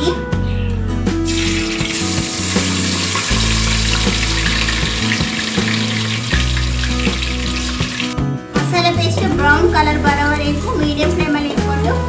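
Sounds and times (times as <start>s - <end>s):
paste sizzling in hot oil: 1.3s - 8.2s.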